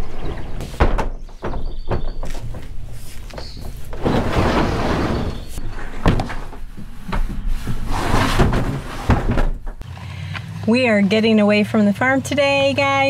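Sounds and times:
plastic kayak scraping on liner: 2.9 - 9.5.

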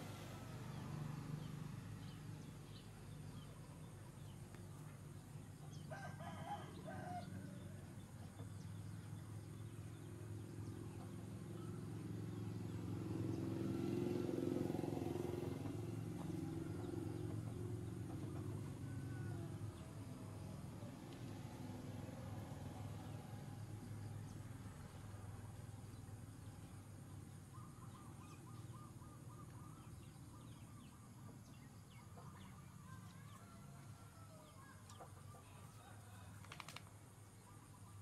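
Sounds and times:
rooster crowing: 5.9 - 7.7, 18.3 - 20.0, 33.4 - 34.7.

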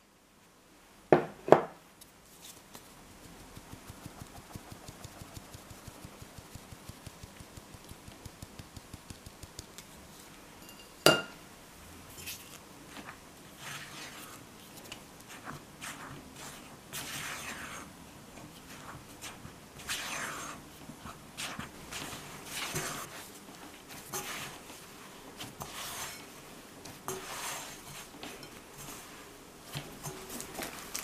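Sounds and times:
flour sieve tapping: 3.3 - 9.9
spatula scraping in glass bowl: 13.6 - 17.9, 18.7 - 20.6, 21.4 - 23.2, 23.9 - 24.6, 25.4 - 26.4, 27.0 - 29.2.

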